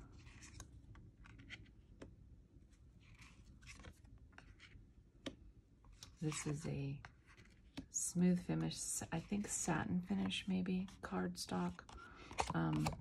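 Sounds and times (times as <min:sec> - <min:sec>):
cards sliding: 0:00.2 - 0:02.1, 0:03.0 - 0:07.9, 0:11.9 - 0:13.0
cards tapping: 0:11.9 - 0:13.0.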